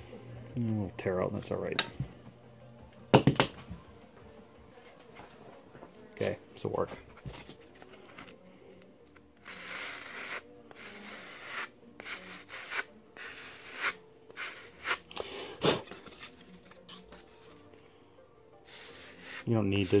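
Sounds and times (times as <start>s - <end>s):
sanding bar rubbing wood: 9.6s - 15.0s.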